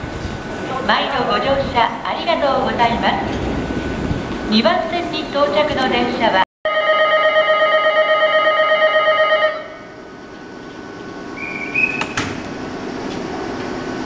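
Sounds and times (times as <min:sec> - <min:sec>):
electric bell ringing: 0:06.7 - 0:09.8.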